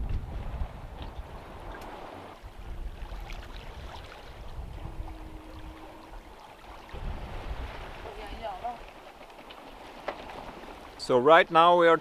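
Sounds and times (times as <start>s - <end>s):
wind rumbling on microphone: 0.0s - 9.0s
water splashing along a hull: 0.0s - 12.0s.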